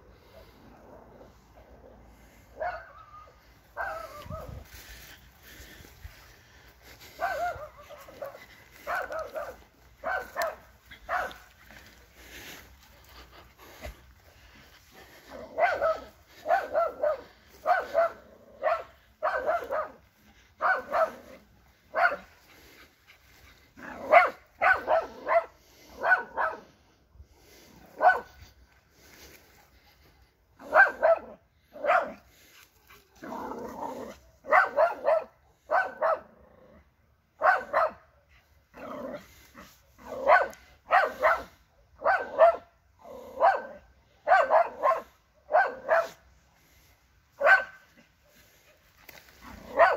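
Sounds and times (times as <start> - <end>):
dog barking: 2.5 - 4.6, 7.2 - 11.5, 15.5 - 20.0, 20.6 - 22.3, 23.9 - 26.7, 28.0 - 28.4, 30.6 - 32.2, 34.4 - 36.3, 37.4 - 38.3, 40.0 - 46.2, 47.4 - 47.8, 49.5 - 49.9.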